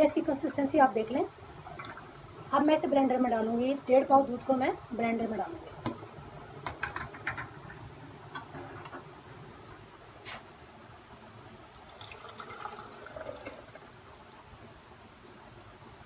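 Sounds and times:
milk pouring splash: 11.6 - 13.8.

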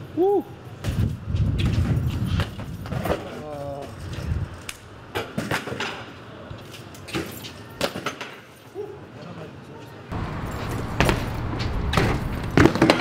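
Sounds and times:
bike tyre rumble on concrete: 0.8 - 5.2, 10.1 - 13.0
bike impacts knocking: 10.4 - 13.0.

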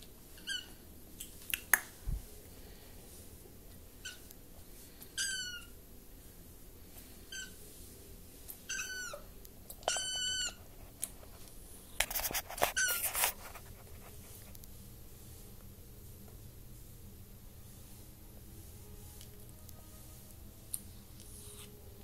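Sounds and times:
kittens mewing: 8.7 - 10.6
scratchy noise: 12.0 - 14.5.

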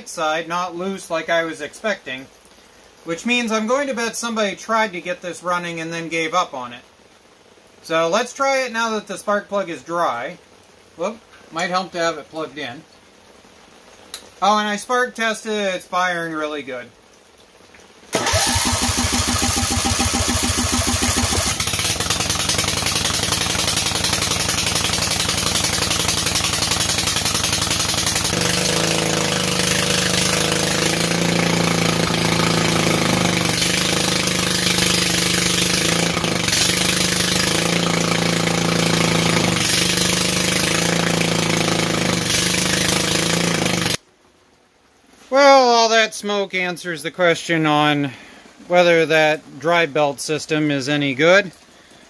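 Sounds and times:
lawn tractor engine starting: 18.1 - 44.0.

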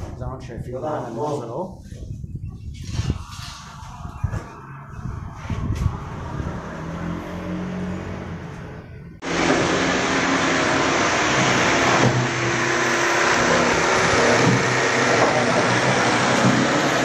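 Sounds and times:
electric jigsaw cutting board: 9.2 - 17.0.

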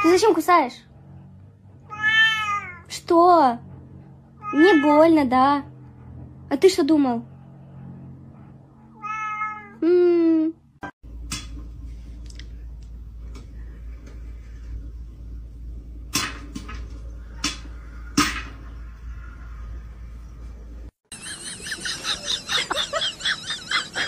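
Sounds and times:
cat meowing: 1.9 - 2.9, 4.4 - 5.1, 8.9 - 9.8.

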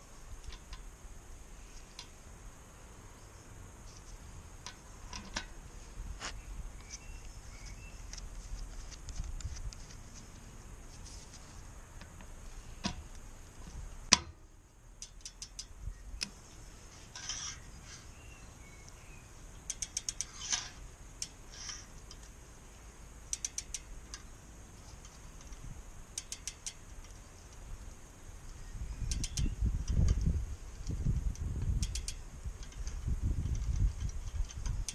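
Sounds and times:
torque wrench ratchet clicking: 15.0 - 16.3, 19.6 - 22.3, 23.3 - 24.3, 25.4 - 27.2, 29.0 - 34.9.

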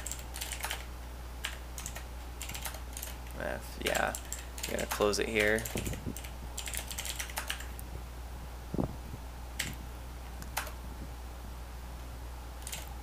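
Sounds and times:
keyboard keystrokes: 0.0 - 3.2, 3.9 - 7.8, 10.4 - 10.8, 12.6 - 12.9
low steady hum: 0.0 - 13.0.

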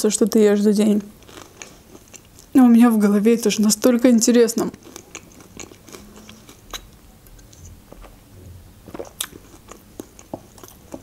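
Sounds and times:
person chewing food: 1.2 - 2.5, 4.8 - 8.2, 8.8 - 11.0.

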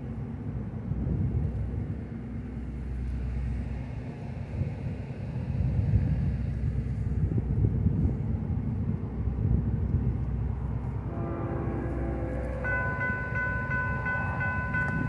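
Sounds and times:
freight train rumble: 0.0 - 15.0
distant train horn: 10.8 - 15.0.

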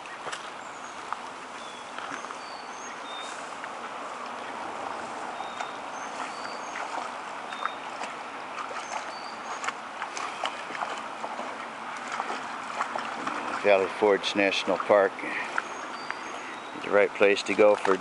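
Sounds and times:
creek water running over stones: 0.0 - 18.0
dog splashing in water: 4.9 - 18.0.

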